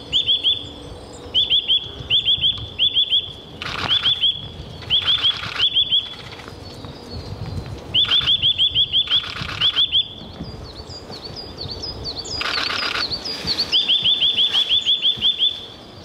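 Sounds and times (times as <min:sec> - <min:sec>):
buzzy bird calls: 0:00.0 - 0:07.2, 0:07.9 - 0:16.0
bird rising whistled notes: 0:07.9 - 0:10.2, 0:12.3 - 0:15.8.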